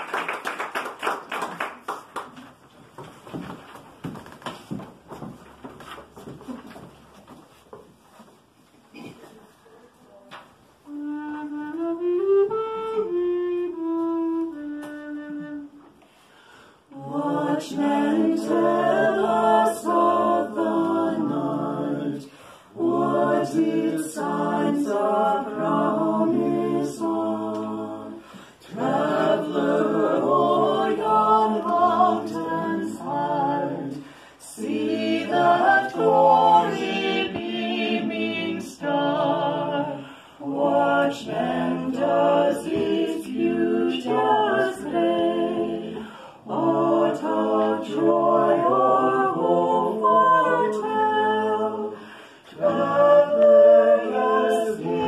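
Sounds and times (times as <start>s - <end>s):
recorder melody: 10.9s - 16.0s
ensemble singing a cappella: 16.8s - 55.0s.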